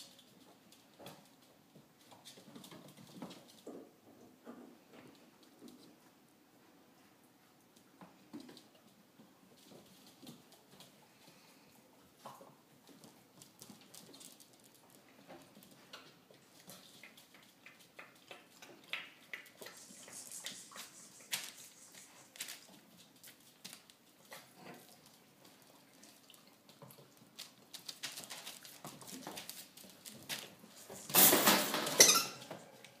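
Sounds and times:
rustling noise: 19.5s - 24.2s, 27.3s - 32.8s
puppy lapping water: 24.3s - 27.5s.

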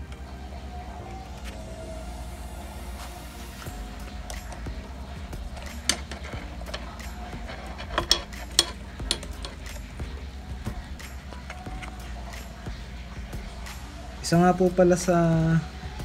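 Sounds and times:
clinks of tools and parts: 5.6s - 9.9s.

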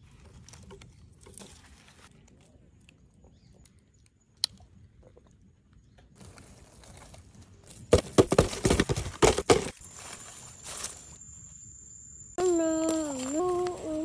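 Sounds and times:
high voice holding a note: 12.4s - 14.0s.

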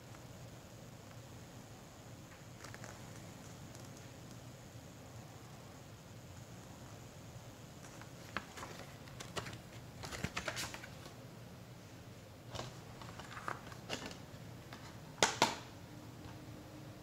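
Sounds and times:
paper booklet rustling: 7.8s - 11.2s, 12.5s - 15.0s
plastic case snapping shut: 15.2s - 15.7s.

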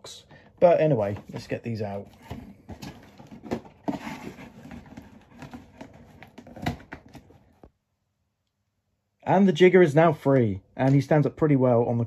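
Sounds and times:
cardboard rustling and scraping: 0.9s - 7.7s.

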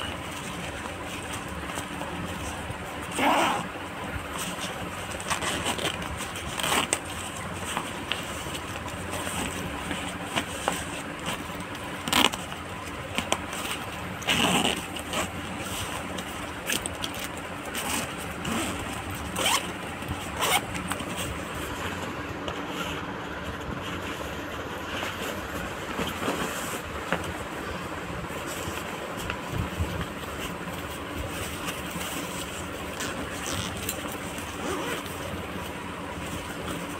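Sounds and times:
zippers being pulled: 0.0s - 12.6s, 13.2s - 21.5s, 31.6s - 35.5s
fabric rustling and scraping: 0.0s - 36.9s.

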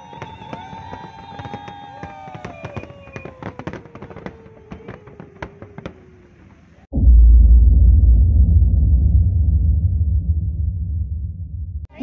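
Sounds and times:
fireworks bangs and crackles: 0.0s - 6.9s
whistling fireworks: 0.0s - 6.9s.

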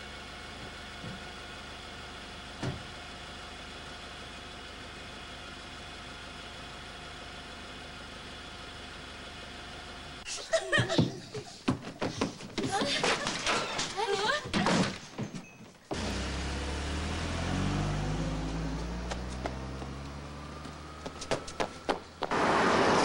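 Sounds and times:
car engine idling: 0.0s - 10.2s, 15.9s - 23.0s
thump: 2.6s - 2.9s.

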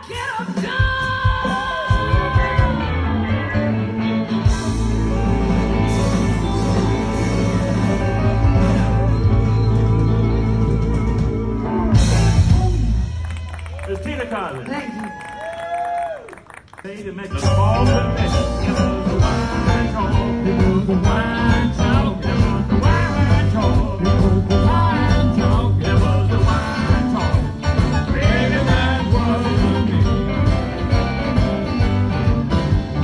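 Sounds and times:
drum kit beat: 0.0s - 3.0s, 4.4s - 13.2s, 17.2s - 33.0s
electric guitar: 0.0s - 13.7s
bass guitar: 0.0s - 14.2s, 17.0s - 33.0s.

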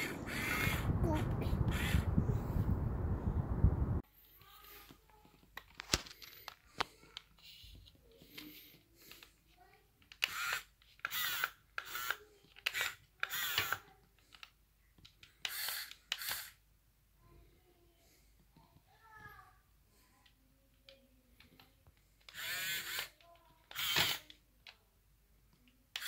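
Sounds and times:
small electric motor whirring: 0.0s - 0.9s, 1.7s - 2.2s, 10.2s - 13.8s, 15.5s - 16.6s, 22.3s - 24.2s.

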